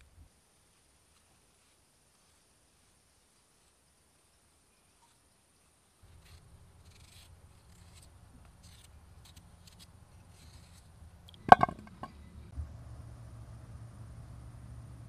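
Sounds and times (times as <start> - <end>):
potato knocking into enamel bowl: 11.4 - 12.1.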